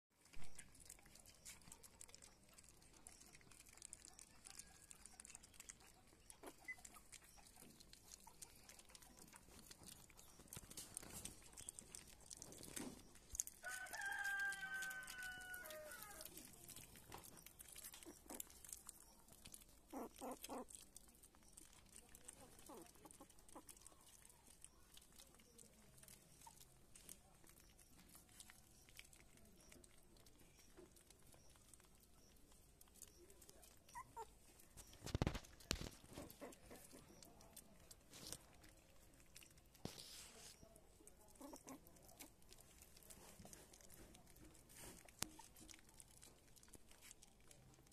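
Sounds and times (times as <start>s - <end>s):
puppies eating off a plate: 0.1s - 47.9s
drawn-out animal call: 13.0s - 16.7s.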